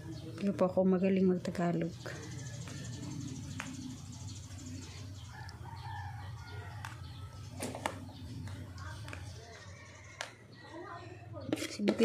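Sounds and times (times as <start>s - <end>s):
metal spoon scraping metal pan: 11.5s - 12.0s.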